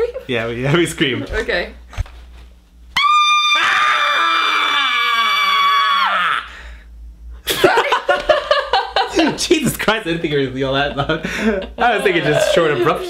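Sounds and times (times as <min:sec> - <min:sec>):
man screaming: 0:03.0 - 0:06.5
woman screaming: 0:03.0 - 0:06.5
laughter: 0:07.5 - 0:09.5, 0:10.9 - 0:13.0.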